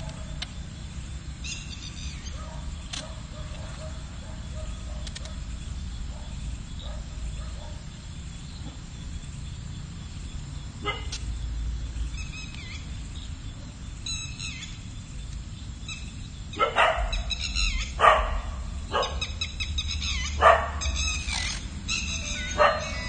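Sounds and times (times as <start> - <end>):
dog barking: 2.3 - 5.5, 6.1 - 7.9, 10.8 - 11.2, 16.6 - 17.4, 18.0 - 19.4, 20.3 - 21.1, 22.5 - 23.0.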